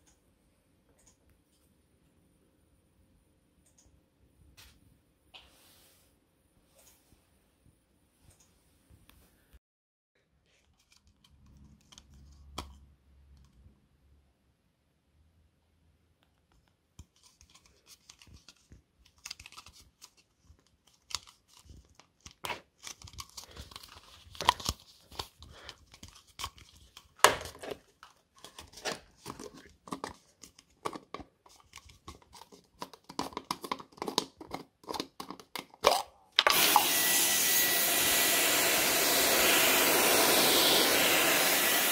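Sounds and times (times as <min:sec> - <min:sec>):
plastic jar clicking and scraping: 0:17.0 - 0:36.1
vacuum cleaner running: 0:36.4 - 0:41.9.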